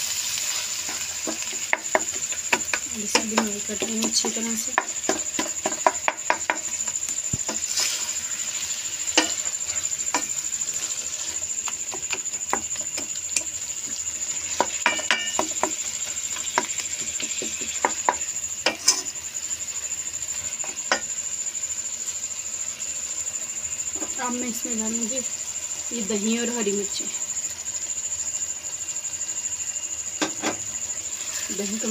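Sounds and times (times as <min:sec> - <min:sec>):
meat sizzling in oil: 0:00.0 - 0:31.9
spatula scraping pan: 0:00.4 - 0:19.2
spatula knocking pan: 0:00.8 - 0:08.0, 0:09.1 - 0:19.1.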